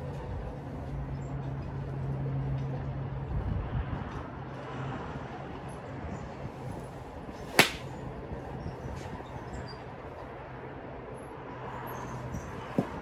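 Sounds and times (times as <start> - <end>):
wind noise: 3.2 - 4.3
golf club striking ball: 7.5 - 8.0.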